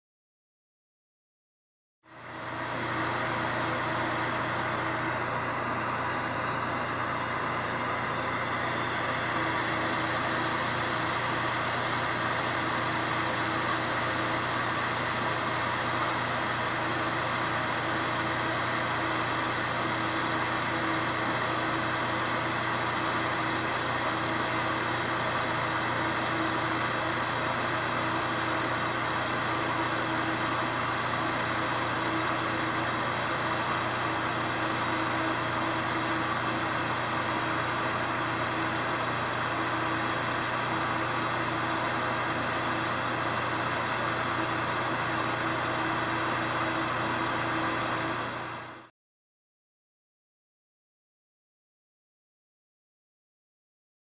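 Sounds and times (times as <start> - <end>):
steady low hum: 2.1 - 48.9
torch flame hissing: 2.3 - 15.4.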